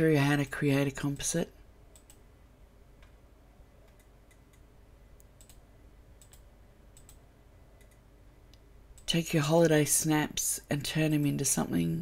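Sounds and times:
low room hum: 0:00.0 - 0:12.0
computer clicks: 0:01.9 - 0:02.2, 0:03.8 - 0:05.6, 0:06.2 - 0:07.2, 0:07.8 - 0:09.2.

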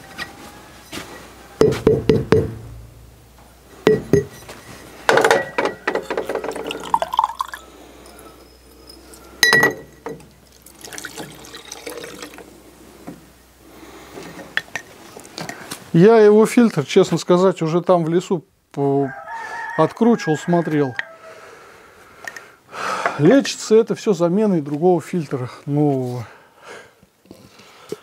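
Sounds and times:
glass and metal clinking: 0:03.9 - 0:12.4, 0:14.3 - 0:15.6
liquid trickling into a jar: 0:06.0 - 0:09.3, 0:10.2 - 0:12.6.

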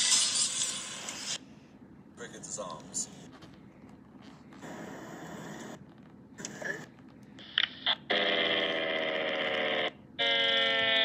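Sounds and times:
loud buzzing alarm tone: 0:08.1 - 0:11.0.

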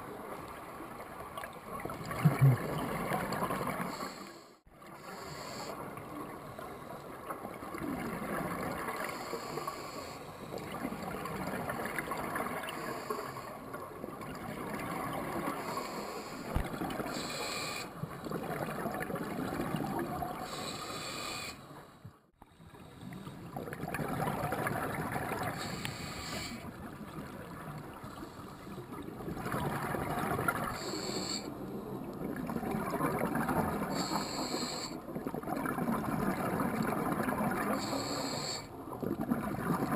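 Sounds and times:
exhaled bubbles burbling: 0:01.9 - 0:03.9, 0:18.2 - 0:20.6, 0:23.5 - 0:25.6, 0:29.0 - 0:30.7, 0:32.2 - 0:34.0, 0:35.1 - 0:37.8, 0:39.0 - 0:39.9
regulator inhalation hiss: 0:04.0 - 0:05.8, 0:09.2 - 0:10.4, 0:15.6 - 0:17.9, 0:20.5 - 0:21.7, 0:25.6 - 0:26.6, 0:30.7 - 0:31.5, 0:33.9 - 0:35.0, 0:37.8 - 0:38.7.

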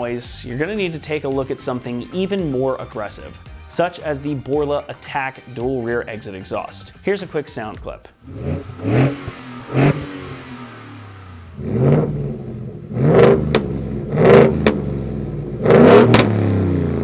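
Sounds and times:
truck engine revving: 0:08.2 - 0:17.0.

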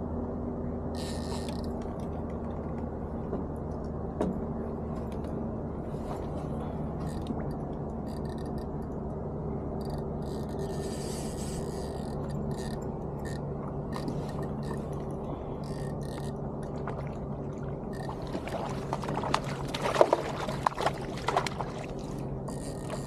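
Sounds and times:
steady low hum: 0:00.0 - 0:23.0
fish splashing at water surface: 0:15.7 - 0:23.0.

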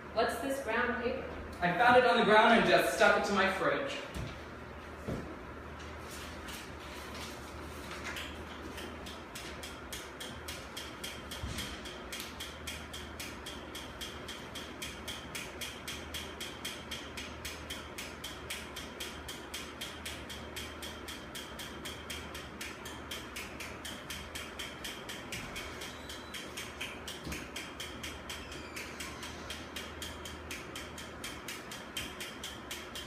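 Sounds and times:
rapid mechanical clicking: 0:08.0 - 0:33.0.

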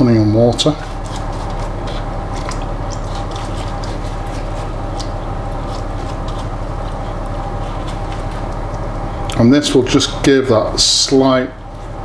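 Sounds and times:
low electrical hum: 0:00.0 - 0:12.0
pastry brush dabbing and scraping: 0:00.4 - 0:09.1.

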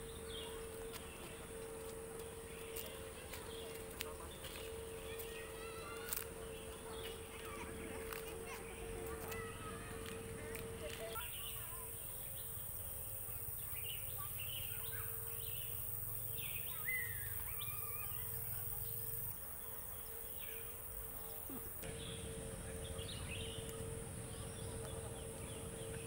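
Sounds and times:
birds chirping and trilling: 0:00.0 - 0:26.0
insects droning: 0:00.0 - 0:26.0
low wind rumble: 0:21.8 - 0:26.0.

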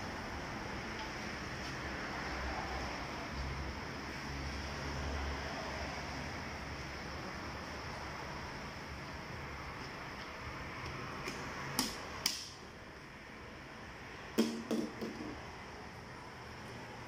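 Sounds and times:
hollow plastic bottle knocks: 0:14.4 - 0:15.3.

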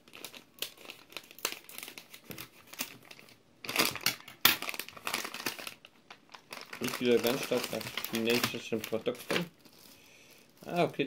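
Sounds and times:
plastic crinkling and rustling: 0:00.0 - 0:11.0.

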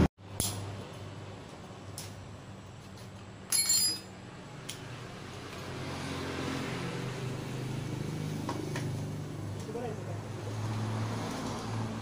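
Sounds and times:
hand tool clanking on metal hub: 0:03.5 - 0:04.1.

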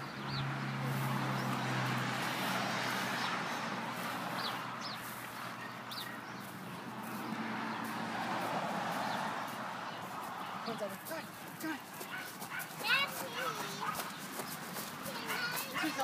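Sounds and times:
traffic hiss and rumble: 0:00.0 - 0:16.0
high bird chirps: 0:04.4 - 0:06.6.

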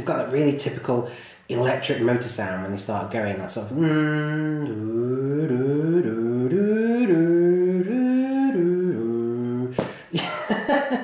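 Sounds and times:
man humming rising glides: 0:03.8 - 0:09.7.

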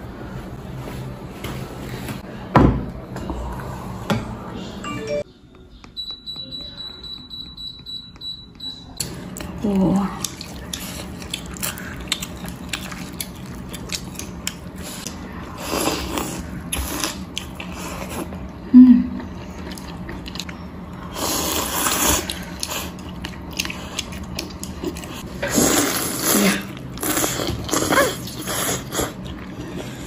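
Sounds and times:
chewing: 0:09.0 - 0:15.2, 0:15.8 - 0:18.5, 0:19.2 - 0:20.6, 0:21.4 - 0:30.0.

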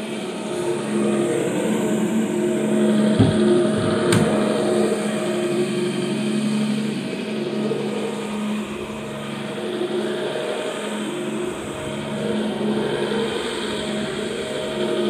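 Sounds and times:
carpet cleaning machine humming: 0:00.0 - 0:09.6
knocks: 0:03.1 - 0:04.4.

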